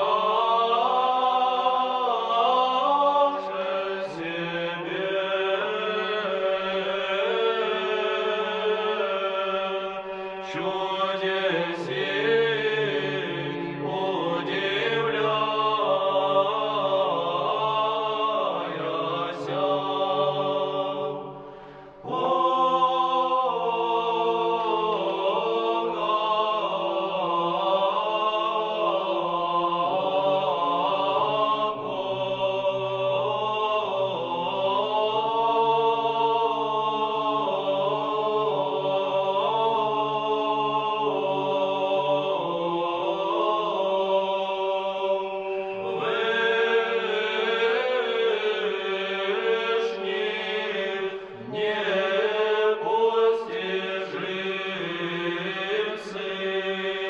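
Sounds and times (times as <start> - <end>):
choir singing chant: 0.0 - 57.0
low held vocal drone: 0.0 - 57.0.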